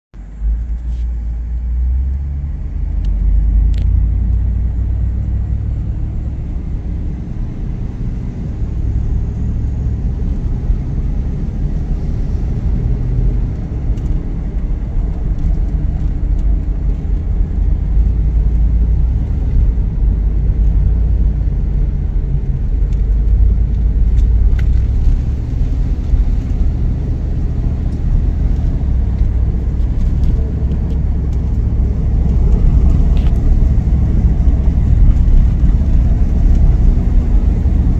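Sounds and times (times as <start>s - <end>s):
truck engine and road rumble: 0.1s - 37.9s.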